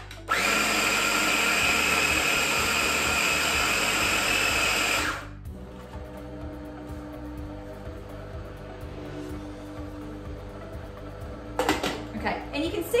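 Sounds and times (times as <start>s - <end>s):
food chopper motor whine: 0.2s - 9.0s.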